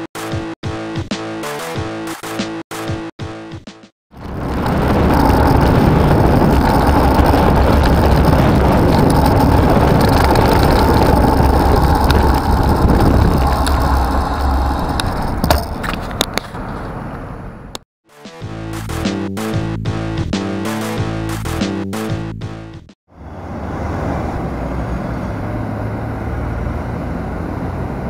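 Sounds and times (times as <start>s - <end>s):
road noise: 4.2s - 17.8s, 23.1s - 28.0s
wind rumble on microphone: 4.2s - 17.8s
bus diesel engine running: 4.8s - 17.8s, 23.2s - 28.0s.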